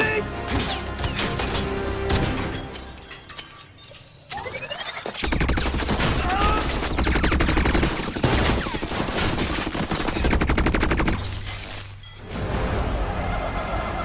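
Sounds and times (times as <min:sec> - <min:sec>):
impacts and flying debris: 0:00.6 - 0:13.0
rapid automatic gunfire: 0:05.0 - 0:11.4.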